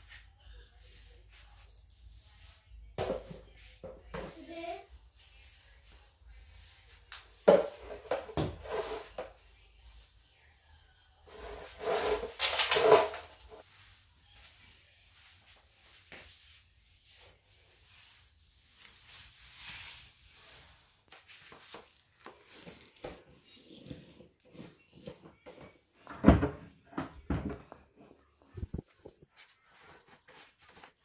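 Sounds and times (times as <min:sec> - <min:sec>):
mop scraping and swishing on tiles: 0:00.0 - 0:31.0
mop knocking against appliances: 0:03.0 - 0:04.5, 0:07.3 - 0:09.3, 0:25.0 - 0:27.9.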